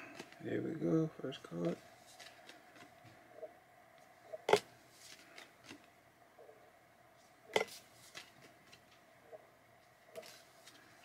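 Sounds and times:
cards rustling: 1.5 - 3.2, 4.0 - 5.9, 7.6 - 9.0, 10.1 - 11.0.

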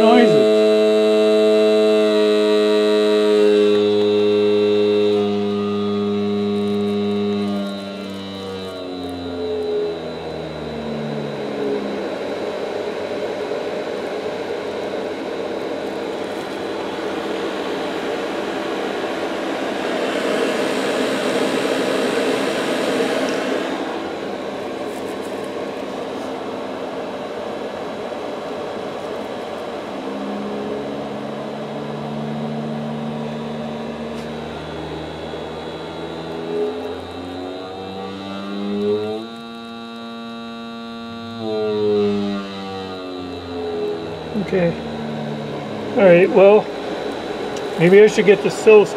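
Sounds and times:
fan air rush: 0.0 - 48.9
motor buzzing hum: 0.0 - 48.9.

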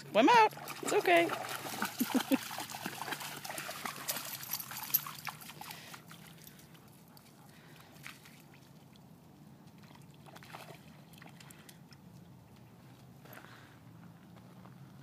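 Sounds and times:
dog splashing through water: 0.3 - 9.1, 9.7 - 11.8.

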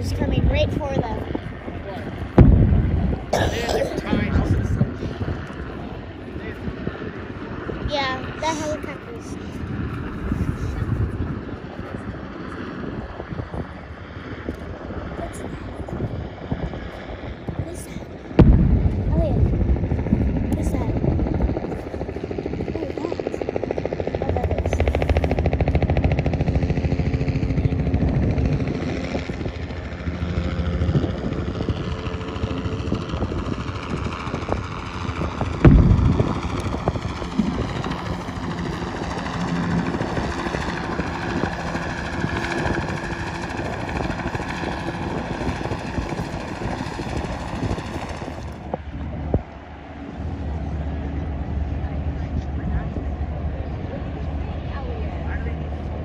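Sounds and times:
engine drone: 0.0 - 56.0
wind: 0.0 - 56.0
distant cannon shot: 2.4 - 3.4, 18.4 - 21.0, 35.6 - 36.6.

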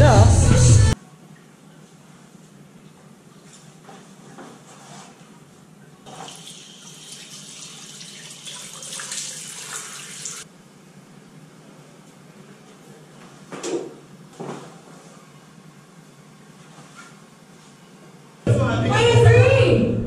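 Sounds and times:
water running from tap: 6.1 - 10.4.

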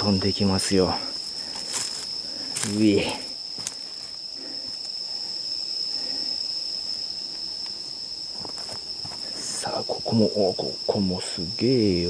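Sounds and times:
cricket trilling: 0.0 - 12.0.

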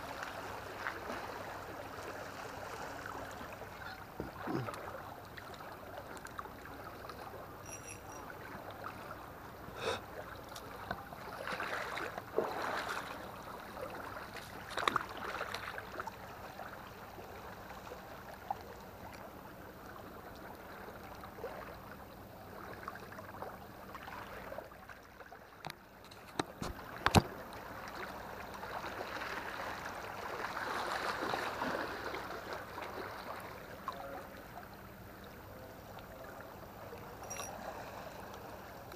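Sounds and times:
waves lapping against a seawall: 0.0 - 38.9.

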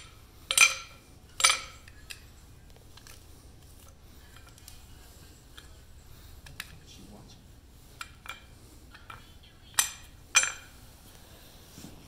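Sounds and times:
metal blocks clinking: 0.0 - 2.2, 9.8 - 10.8.

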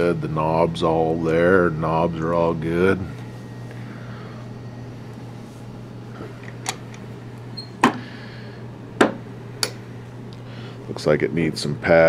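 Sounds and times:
steady low hum: 0.0 - 12.0
sharp handling knocks: 9.0 - 9.8.

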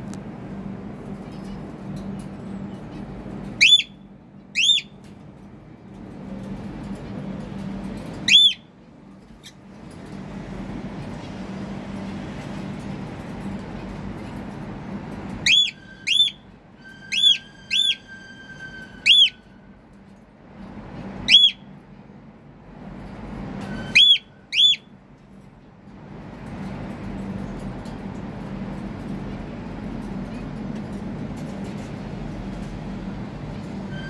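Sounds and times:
cockatiel whistled calls: 3.6 - 4.0, 4.6 - 4.9, 8.2 - 8.6, 15.4 - 16.4, 17.0 - 18.1, 19.0 - 19.4, 21.3 - 21.6, 23.8 - 24.9.

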